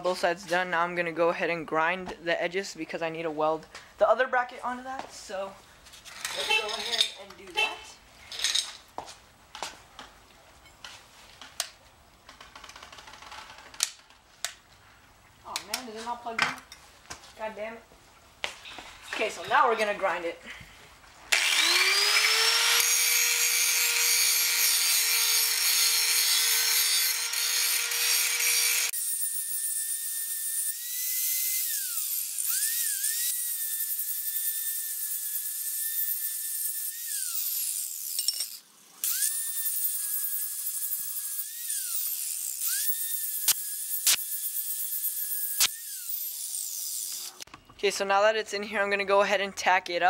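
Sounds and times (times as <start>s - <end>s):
angle grinder grinding steel: 6.2s - 7.2s, 21.3s - 47.5s.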